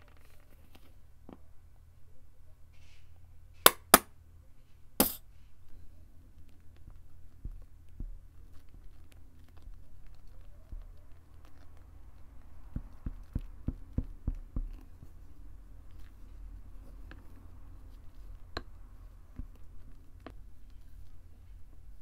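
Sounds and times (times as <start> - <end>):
spatula squishing slime in bowl: 6.3 - 22.0.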